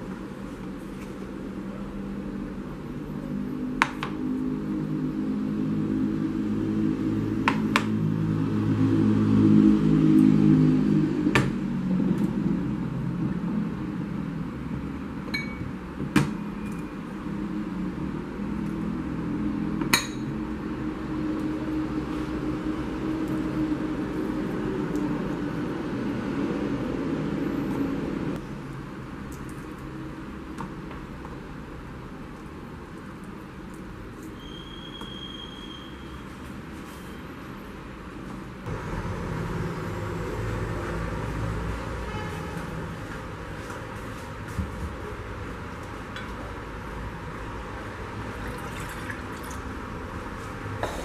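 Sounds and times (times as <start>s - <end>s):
glass lid clinking: 15.3s - 15.7s.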